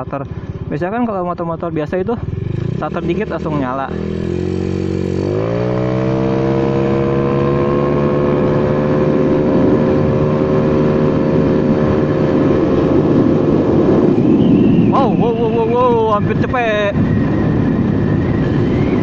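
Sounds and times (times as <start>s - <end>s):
scooter engine accelerating: 2.0s - 19.0s.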